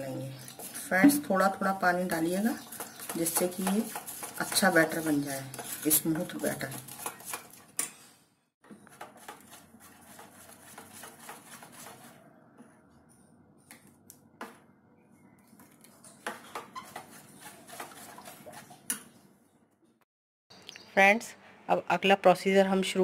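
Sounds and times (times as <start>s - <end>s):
spoon scraping batter in a bowl: 0.0s - 7.9s, 8.8s - 12.3s, 15.4s - 19.3s.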